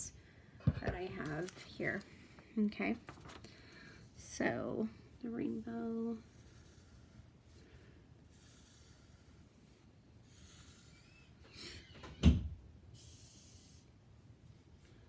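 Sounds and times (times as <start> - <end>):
pencil scratching on paper: 5.5 - 11.4.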